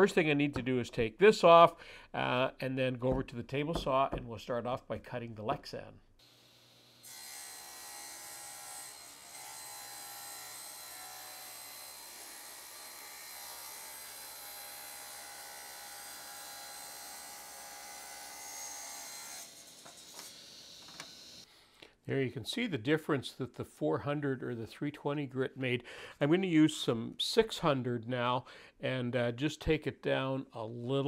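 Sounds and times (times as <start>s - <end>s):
table saw cutting plastic: 6.2s - 21.4s.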